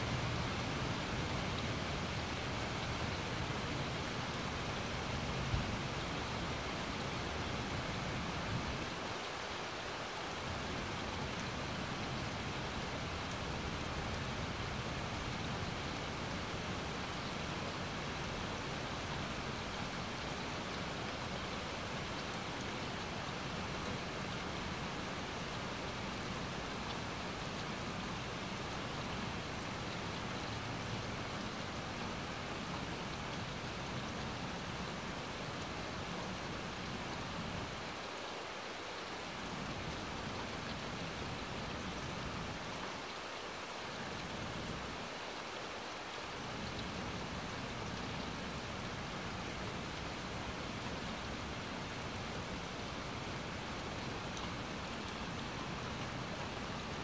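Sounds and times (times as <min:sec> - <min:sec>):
rain on grass and trees: 0:00.0 - 0:57.0.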